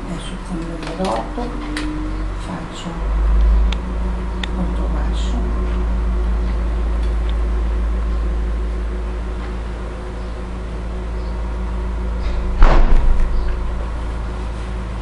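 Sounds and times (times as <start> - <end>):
low electrical hum: 0.0 - 15.0
sudden rattling knock: 12.3 - 13.6.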